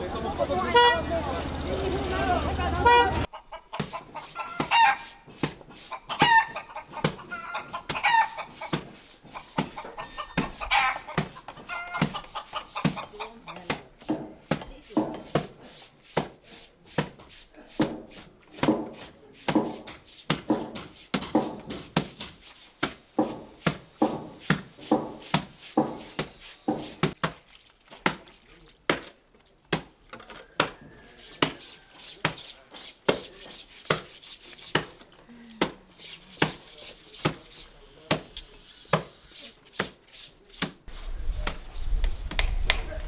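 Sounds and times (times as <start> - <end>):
knife chopping: 13.6 - 27.4, 30.6 - 35.0.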